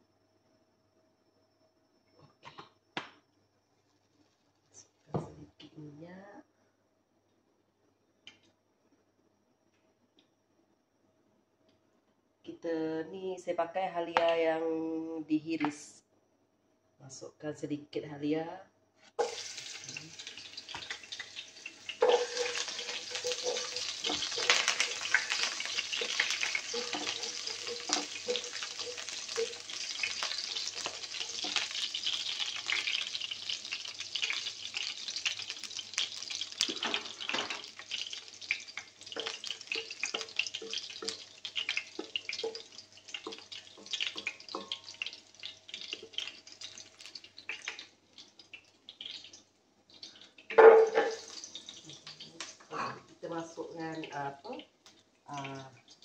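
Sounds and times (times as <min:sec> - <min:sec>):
ginger sizzling in hot oil: 0:19.2 - 0:56.0.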